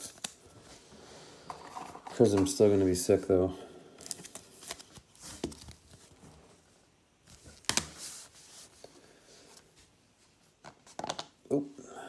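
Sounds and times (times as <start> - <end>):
cards rustling: 4.0 - 6.2.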